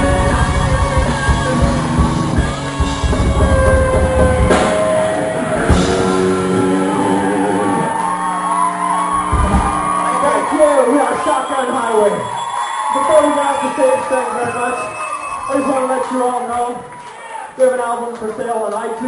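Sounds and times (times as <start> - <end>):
drum kit: 0.0 - 11.3
distorted electric guitars: 0.0 - 12.4.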